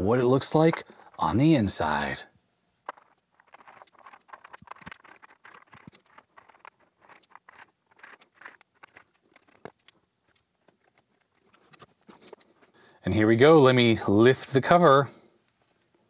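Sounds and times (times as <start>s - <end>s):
screwdriver scratching: 2.9s - 12.7s.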